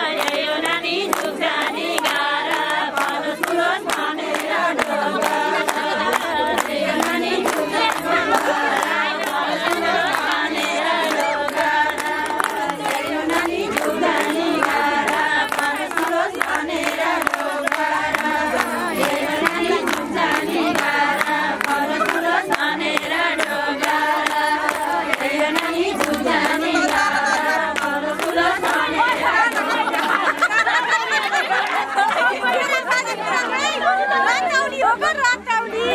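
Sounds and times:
group clapping hands: 0:00.0 - 0:35.9
women singing in chorus: 0:00.0 - 0:35.9.

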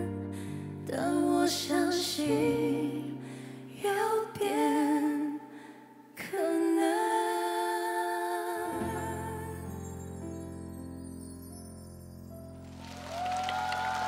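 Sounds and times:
woman singing a ballad: 0:00.0 - 0:10.0.

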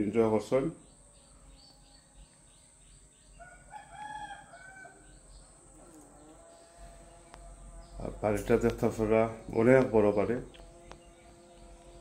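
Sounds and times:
small birds chirping: 0:00.0 - 0:12.0
faint rooster crowing: 0:03.3 - 0:05.4.

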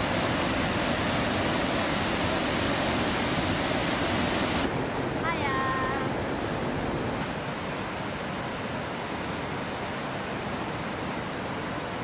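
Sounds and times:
waterfall rushing: 0:00.0 - 0:08.1.

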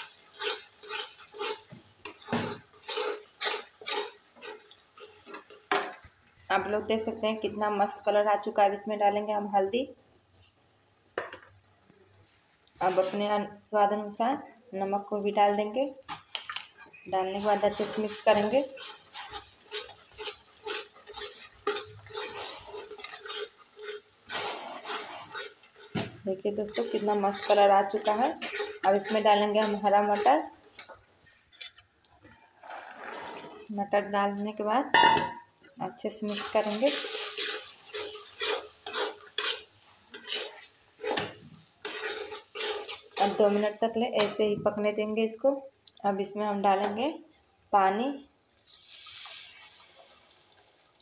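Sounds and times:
metal spatula scraping a metal pan: 0:00.0 - 0:05.7, 0:12.8 - 0:13.4, 0:16.9 - 0:31.6, 0:36.2 - 0:44.4
paste frying in oil: 0:00.0 - 0:08.5, 0:17.0 - 0:33.7, 0:35.9 - 0:44.4, 0:48.6 - 0:51.0.

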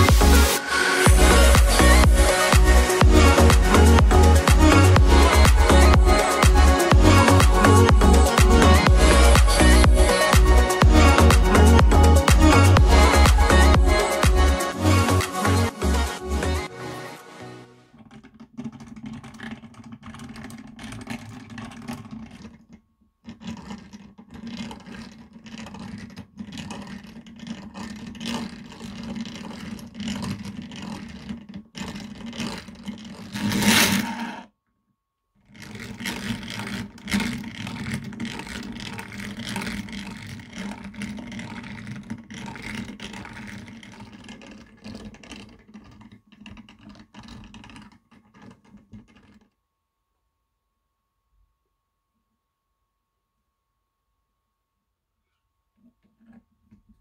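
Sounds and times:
hand-cranked knife sharpener whirring: 0:00.0 - 0:16.7, 0:23.4 - 0:34.5, 0:35.5 - 0:48.5
scraping rattle: 0:00.0 - 0:16.7, 0:17.9 - 0:34.5, 0:35.5 - 0:49.5.

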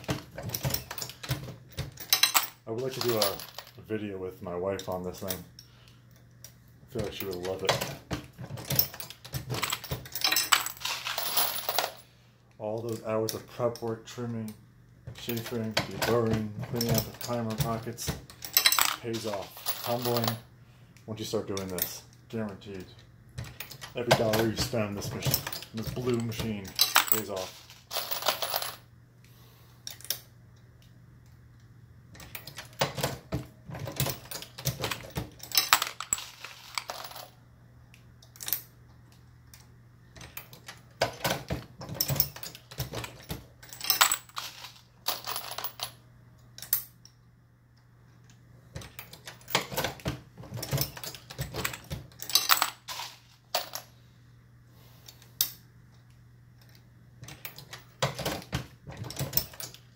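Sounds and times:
brass cases clinking: 0:00.0 - 0:03.8, 0:07.3 - 0:12.0, 0:15.2 - 0:20.4, 0:23.4 - 0:28.8, 0:32.3 - 0:37.4, 0:41.0 - 0:46.0, 0:48.8 - 0:53.8.

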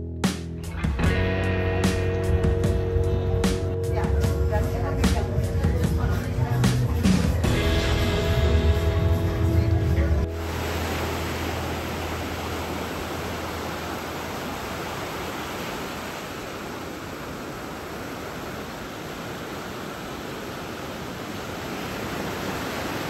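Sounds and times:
ocean waves breaking: 0:04.7 - 0:23.0.

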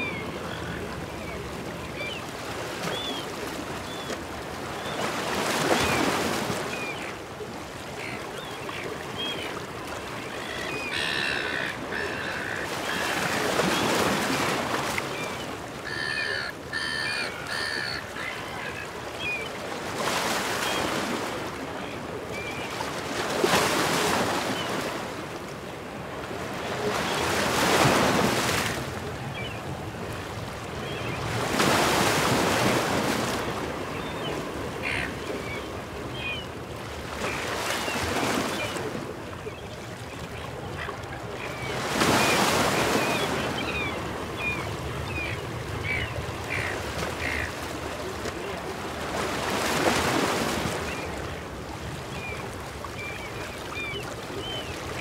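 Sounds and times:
gulls squawking: 0:10.3 - 0:14.2, 0:15.8 - 0:19.4, 0:30.9 - 0:36.5, 0:40.6 - 0:47.6.

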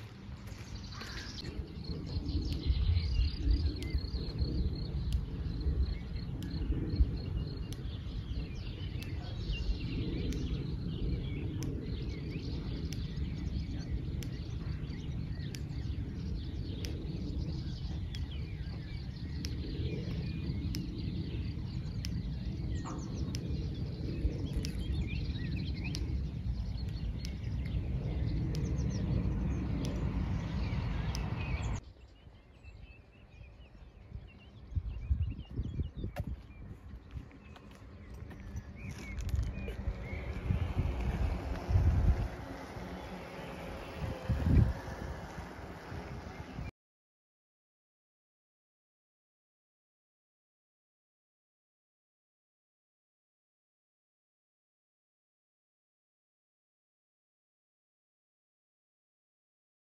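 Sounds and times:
small birds chirping and singing: 0:00.0 - 0:46.7
steady low rumble: 0:00.0 - 0:46.7.

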